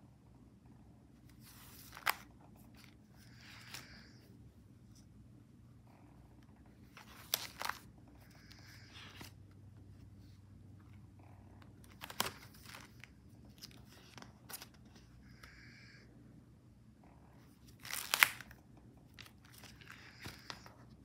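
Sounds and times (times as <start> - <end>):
low steady hum: 0.0 - 21.0
pages rustling and crackling: 1.2 - 4.3, 6.8 - 10.4, 11.6 - 15.2, 17.5 - 21.0
page snapping over: 7.0 - 7.8, 11.9 - 13.0, 17.8 - 18.5.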